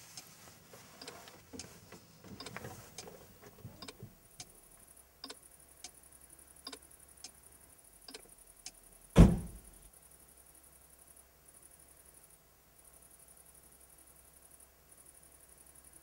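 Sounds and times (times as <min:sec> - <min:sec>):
heavy thump: 0:09.2 - 0:09.7.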